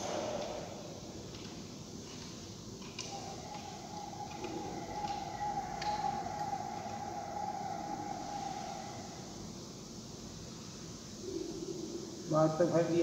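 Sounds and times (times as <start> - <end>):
wavering whistle-like tone: 2.9 - 9.8.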